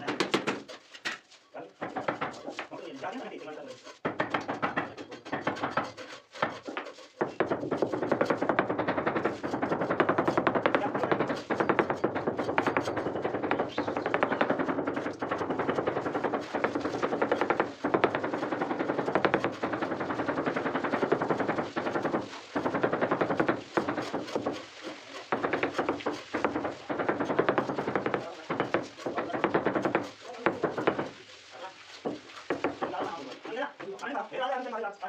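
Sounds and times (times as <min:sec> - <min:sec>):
rapid hammering: 0:00.0 - 0:33.9.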